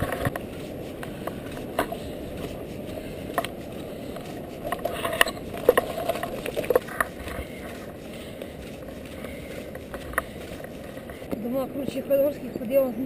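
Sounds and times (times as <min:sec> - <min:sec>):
bike rattling over stones: 0:00.0 - 0:00.5, 0:04.7 - 0:07.6
bicycle tyre and wind noise: 0:00.0 - 0:11.3.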